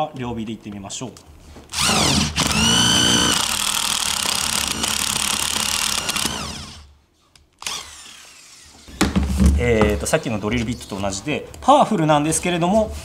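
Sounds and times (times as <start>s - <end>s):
impact driver boring into wood: 1.7s - 6.9s, 7.6s - 9.0s.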